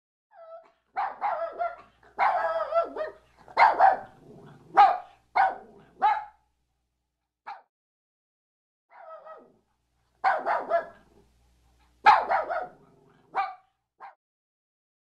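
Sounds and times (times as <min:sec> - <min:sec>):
dog barking and yipping: 0:00.3 - 0:06.4, 0:08.9 - 0:09.6, 0:10.2 - 0:11.1, 0:12.0 - 0:14.2.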